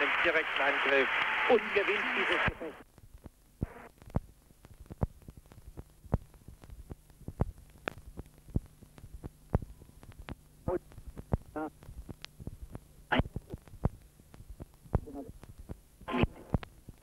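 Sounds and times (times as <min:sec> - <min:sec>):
voice: 0:00.0 - 0:02.8, 0:11.5 - 0:11.7, 0:15.0 - 0:15.3, 0:16.1 - 0:16.5
low steady hum: 0:00.0 - 0:17.0
sharp clicks: 0:03.2 - 0:15.8.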